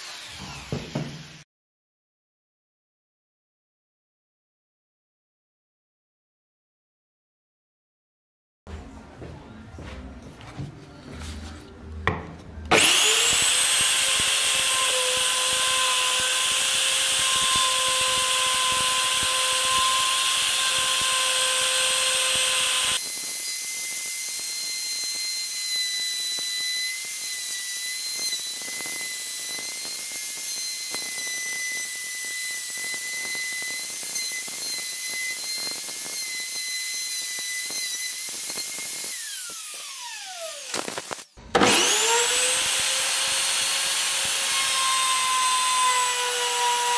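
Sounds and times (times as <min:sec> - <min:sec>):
electric router high whine: 0:00.0 - 0:01.4, 0:12.7 - 0:46.9.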